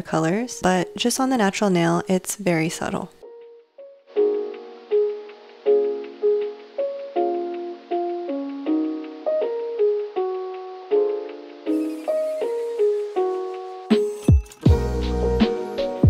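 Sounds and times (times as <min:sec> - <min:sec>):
keyboard chords: 0:03.2 - 0:16.0.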